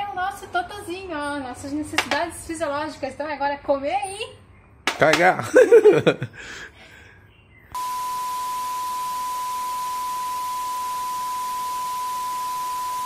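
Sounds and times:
steady test tone beep: 7.8s - 13.0s.

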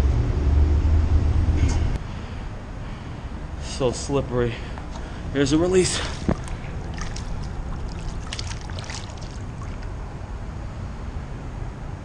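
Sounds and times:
water sloshing: 4.7s - 10.2s
small water splashes: 4.8s - 10.2s.

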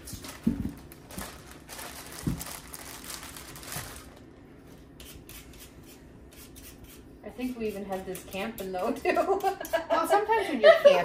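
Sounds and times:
bag crinkling: 0.0s - 4.3s.

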